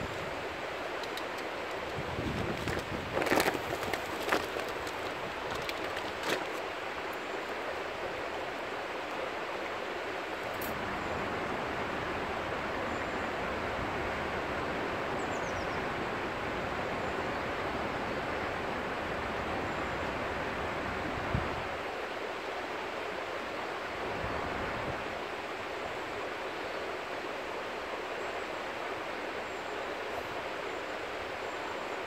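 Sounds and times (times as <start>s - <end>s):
river flowing: 0.0s - 32.0s.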